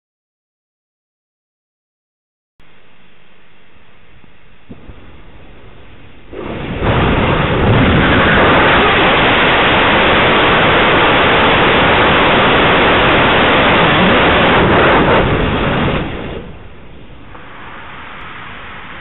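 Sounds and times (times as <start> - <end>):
rocket engine roaring: 4.5 - 19.0.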